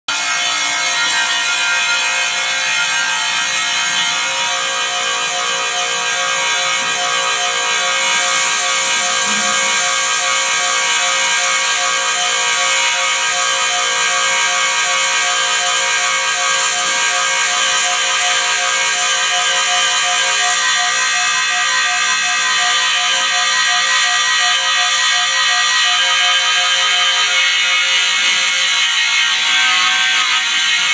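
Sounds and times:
high-pitched grinder whine: 0:00.1 - 0:30.9
hiss of grinding: 0:08.0 - 0:11.8.

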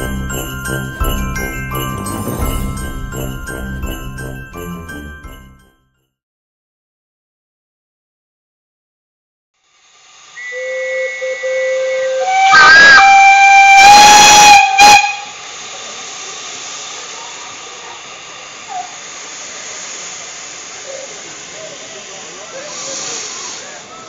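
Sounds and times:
steam locomotive whistle: 0:10.3 - 0:15.5
hiss of escaping steam: 0:14.0 - 0:24.0.

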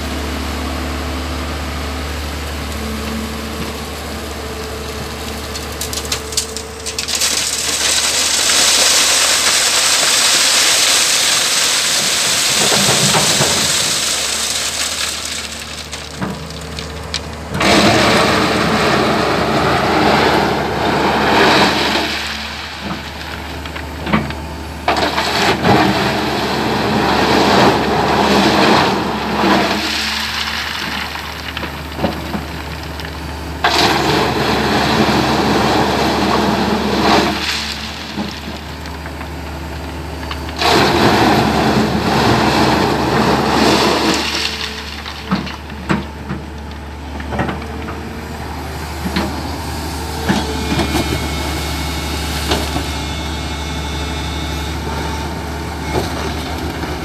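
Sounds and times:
excavator engine under load: 0:00.0 - 0:57.0
rocks scraping and rattling: 0:04.6 - 0:48.1
stones clattering: 0:05.2 - 0:18.8.

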